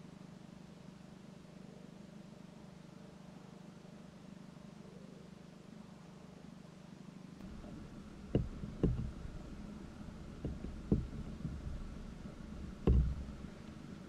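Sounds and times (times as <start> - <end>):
steady low hum: 0.0 - 14.0
dull low handling knocks: 7.4 - 14.0.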